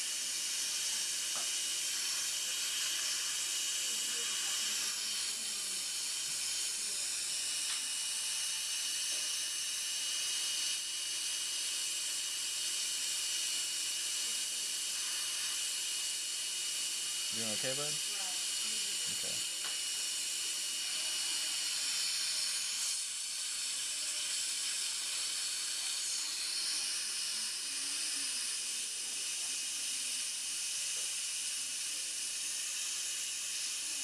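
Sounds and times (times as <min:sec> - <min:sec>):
dental suction hissing: 0:00.0 - 0:34.0.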